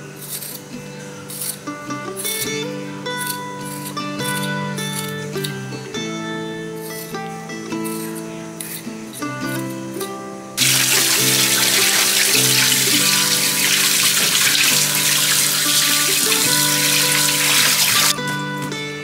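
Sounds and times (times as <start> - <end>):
acoustic guitar music: 0.0 - 19.0
tap water running onto potatoes: 10.6 - 18.3.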